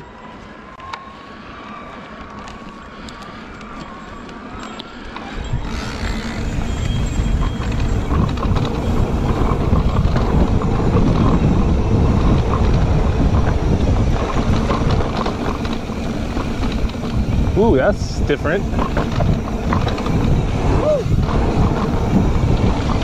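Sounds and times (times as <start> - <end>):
bike tyres rolling on dirt: 0.0 - 23.0
bike frame rattling: 3.6 - 23.0
wind rumble on microphone: 5.2 - 23.0.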